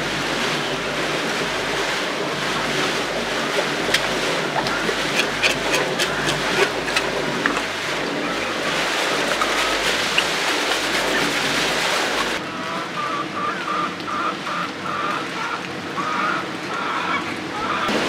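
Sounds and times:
running water splashing: 0.0 - 12.4.

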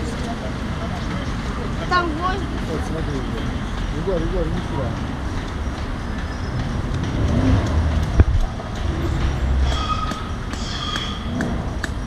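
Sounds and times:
hammer striking metal: 8.7 - 12.0.

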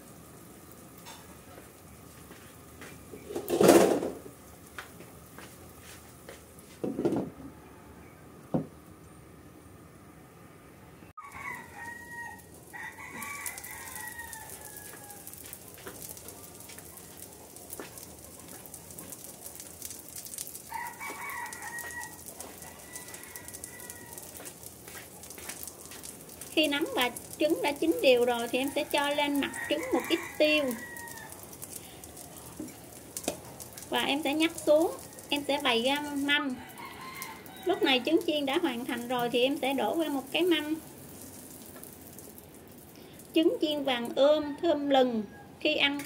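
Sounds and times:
omelette sizzling in frying pan: 0.0 - 7.0, 11.2 - 43.9
rooster crowing: 7.3 - 8.3, 11.2 - 15.6, 20.6 - 24.5, 28.4 - 32.8, 35.0 - 38.7, 44.2 - 45.7
knocks: 8.5 - 8.7.

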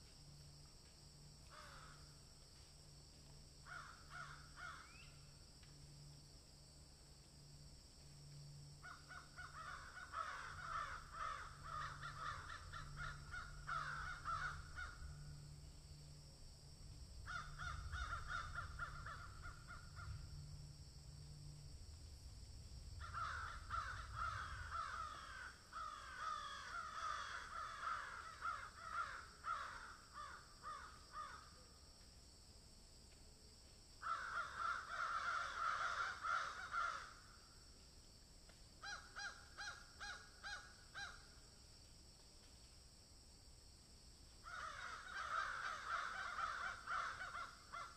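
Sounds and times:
steady high hiss: 0.0 - 35.8
low hum: 14.6 - 25.1.

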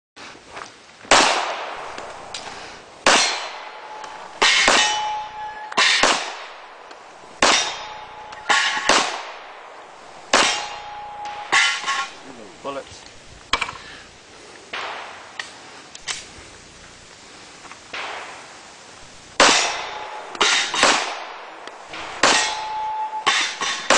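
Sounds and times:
steel plate ringing clang: 3.0 - 6.5, 7.4 - 9.4, 10.3 - 12.3, 19.4 - 21.2, 22.0 - 23.9.

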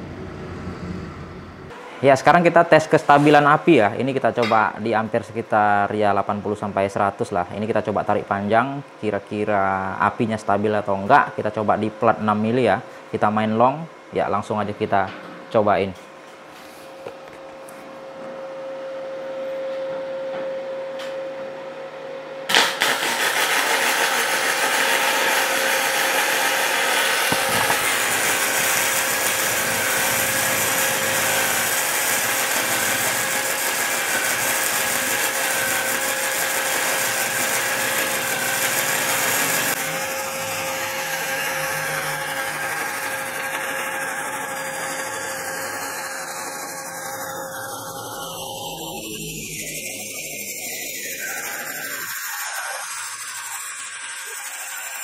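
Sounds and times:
welding arc hissing: 22.5 - 55.0
welding machine hum: 22.5 - 55.0.

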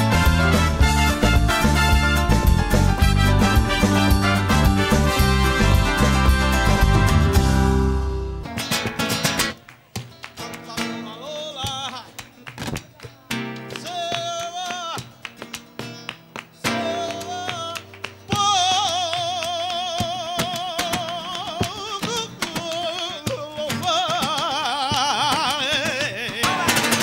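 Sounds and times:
nylon-string guitars: 0.0 - 27.0
hand-clapping: 8.6 - 27.0
man singing flamenco: 10.4 - 27.0.

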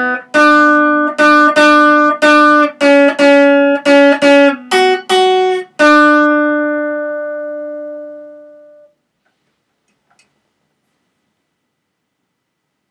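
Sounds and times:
acoustic guitar notes: 0.0 - 9.0
faint click: 9.2 - 11.0.

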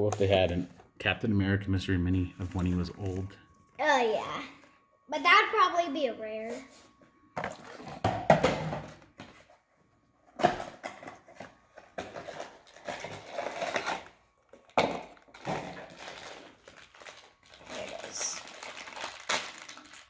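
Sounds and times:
cardboard box and foil bag crinkling: 10.5 - 20.0.

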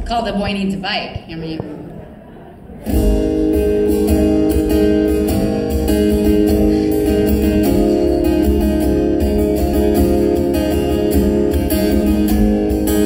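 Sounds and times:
acoustic guitar strumming: 2.8 - 13.0.

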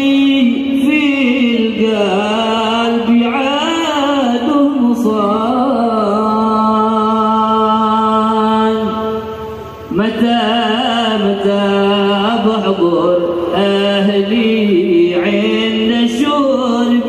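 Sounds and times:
person chanting: 0.0 - 17.0.

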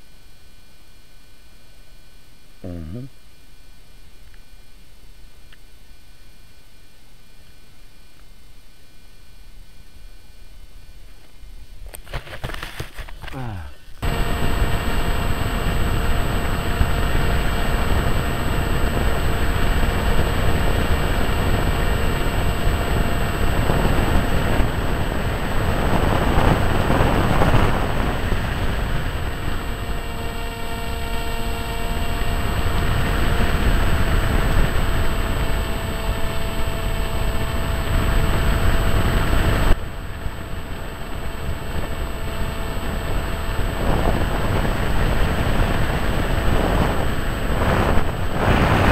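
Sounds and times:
motor and propeller whine: 11.9 - 48.9
wind rushing over microphone: 14.0 - 48.9.

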